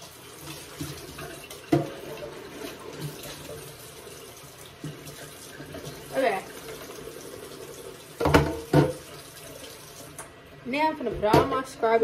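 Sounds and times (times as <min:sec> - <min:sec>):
tap running into sink: 0:00.4 - 0:03.7, 0:08.1 - 0:09.2
container knocking against sink: 0:08.2 - 0:09.0.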